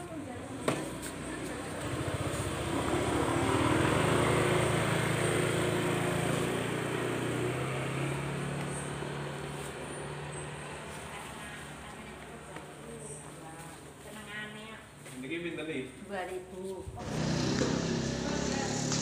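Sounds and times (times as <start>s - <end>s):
motorcycle passing by: 0.2s - 11.8s, 17.0s - 19.0s.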